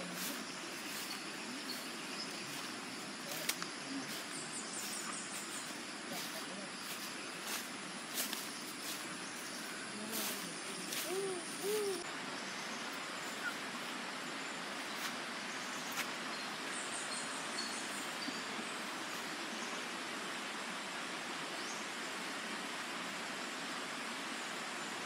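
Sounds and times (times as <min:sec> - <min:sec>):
steady background hiss: 0:00.0 - 0:25.0
dove cooing: 0:10.1 - 0:12.0.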